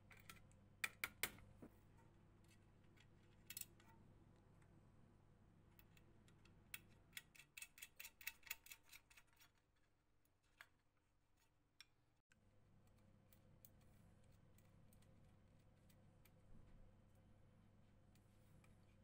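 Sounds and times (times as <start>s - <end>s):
small metallic clicks: 5.8s - 9.5s.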